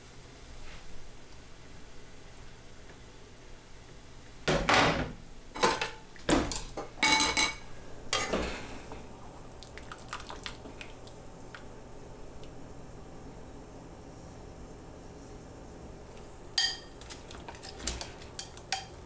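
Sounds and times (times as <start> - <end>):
metal pots clanking: 5.6 - 8.4, 16.6 - 16.9.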